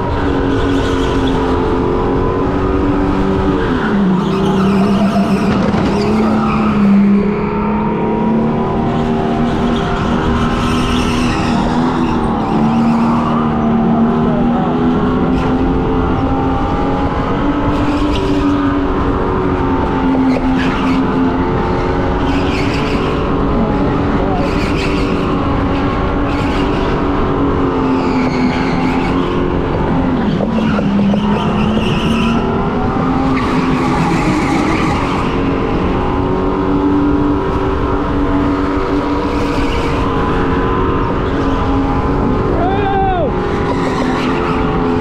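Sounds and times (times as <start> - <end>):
tyre squeals: 3.6 - 8.1.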